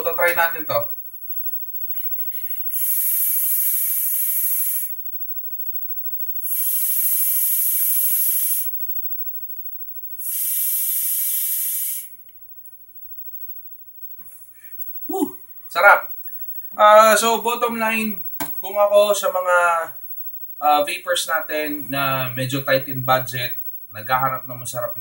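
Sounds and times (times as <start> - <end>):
hissing vape draws: 2.4 - 5.0, 6.4 - 8.8, 10.2 - 12.2.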